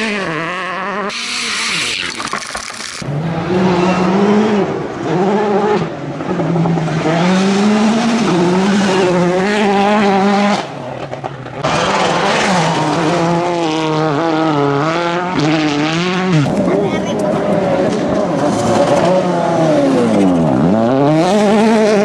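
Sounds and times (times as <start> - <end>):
rally car engine revving: 0.0 - 22.0
gravel thrown by tyres: 1.9 - 3.0.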